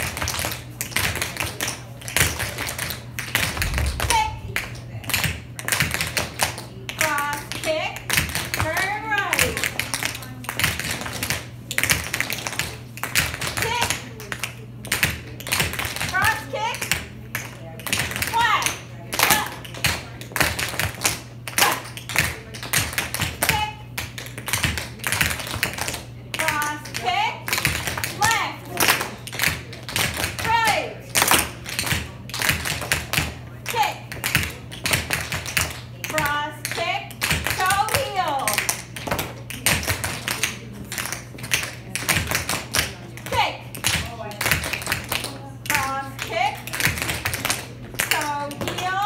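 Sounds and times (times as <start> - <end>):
dance shoes tapping and stamping: 31.2 - 48.8.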